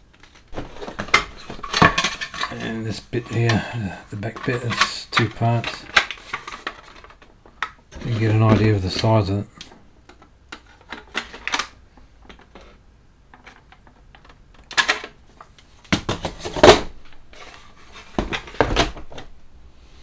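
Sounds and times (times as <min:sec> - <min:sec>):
plastic parts clicking and rustling: 0:00.0 - 0:19.3.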